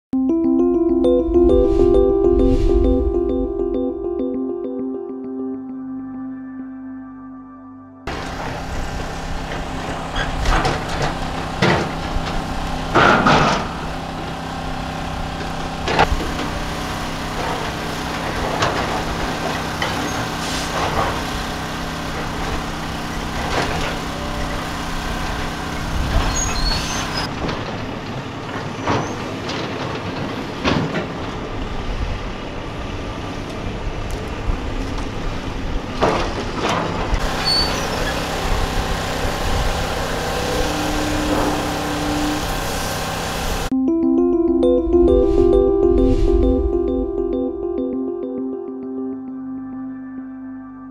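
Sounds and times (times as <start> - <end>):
heavy diesel machinery running: 8.1 - 43.7.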